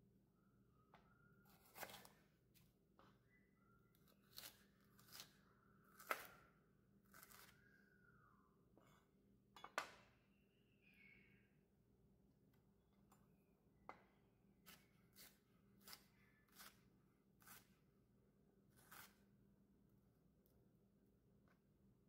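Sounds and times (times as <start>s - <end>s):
knife slicing pepper: 1.5s - 2.2s, 4.2s - 6.4s, 14.6s - 16.8s, 17.4s - 17.8s, 18.7s - 19.2s.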